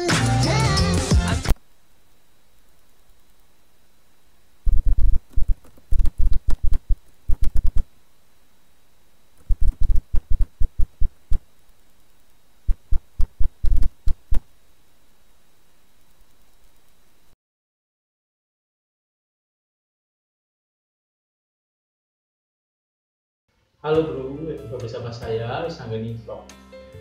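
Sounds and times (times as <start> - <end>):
sharp tapping clicks: 4.7 - 7.9, 9.4 - 12.0, 12.7 - 14.5.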